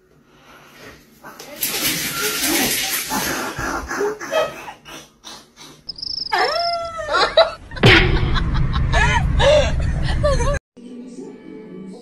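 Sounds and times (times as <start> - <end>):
loud low noise: 7.6 - 10.6.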